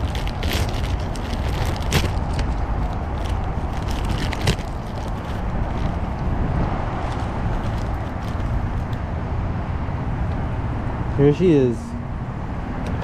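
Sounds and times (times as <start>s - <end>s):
plastic bag crinkling and rustling: 0.0s - 9.0s
steady low rumble: 0.0s - 11.3s.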